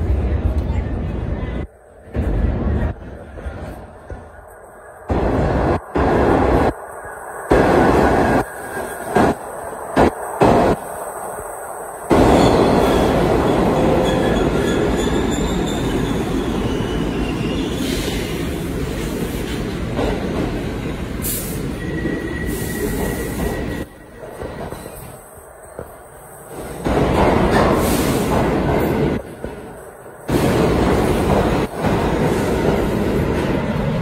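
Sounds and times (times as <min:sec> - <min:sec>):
subway train rumbling: 0:00.0 - 0:34.0
wheel and brake squeals: 0:14.0 - 0:18.2, 0:21.8 - 0:24.1.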